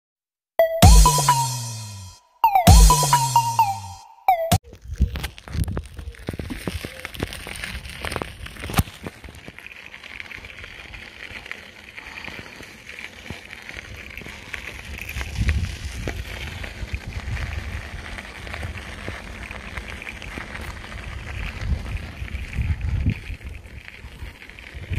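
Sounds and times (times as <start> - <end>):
bicycle tyres crackling over grit: 4.6 - 24.9
wind rumbling on microphone: 13.8 - 24.9.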